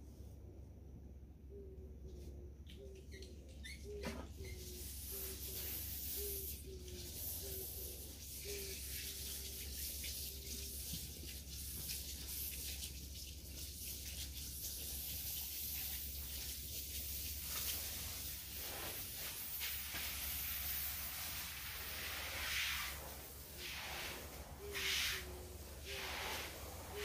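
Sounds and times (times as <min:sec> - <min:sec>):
steady low hum: 0:00.0 - 0:08.8
hose spray hissing: 0:04.5 - 0:27.0.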